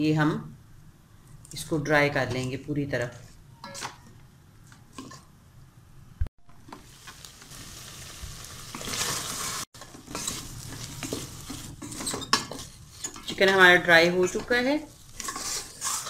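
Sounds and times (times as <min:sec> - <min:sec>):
food sizzling: 0:06.5 - 0:16.0
wooden spatula scraping pot: 0:08.7 - 0:16.0.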